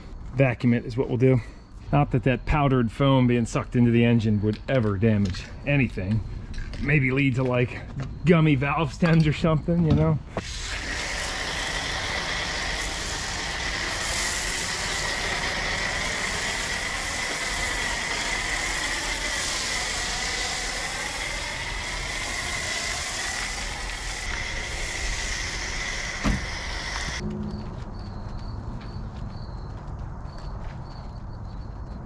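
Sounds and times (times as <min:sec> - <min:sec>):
shop vacuum motor whine: 0:09.0 - 0:27.7.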